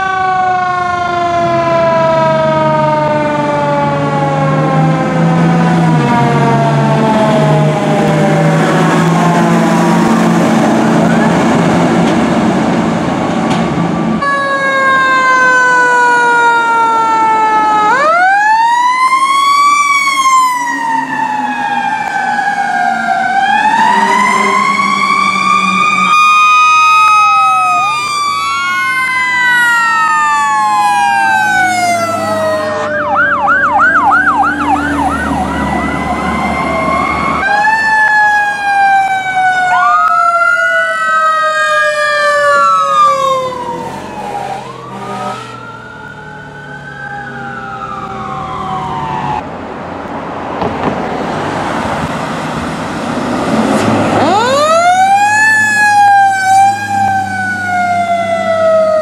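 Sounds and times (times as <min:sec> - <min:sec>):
fire truck sirens wailing: 0:00.0 - 0:59.0
siren fast yelp: 0:10.8 - 0:11.5, 0:14.2 - 0:49.4, 0:54.2 - 0:59.0.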